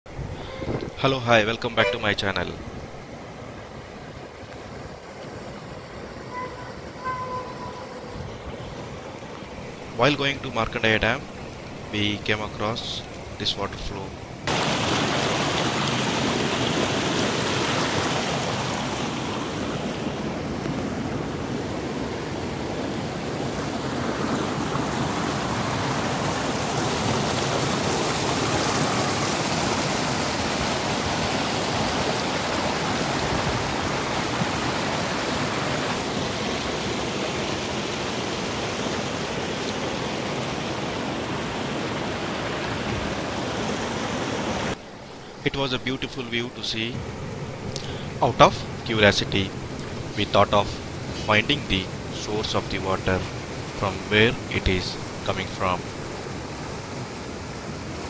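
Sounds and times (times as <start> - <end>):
water rushing over rocks: 7.6 - 45.4, 46.0 - 58.0.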